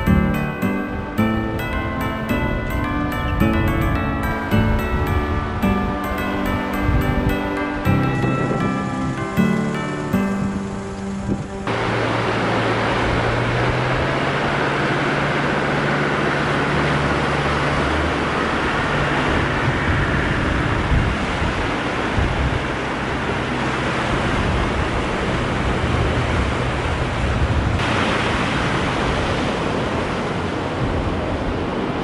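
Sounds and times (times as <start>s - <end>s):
floodwater rushing: 0.0s - 32.0s
vehicle engine running low: 10.6s - 28.0s.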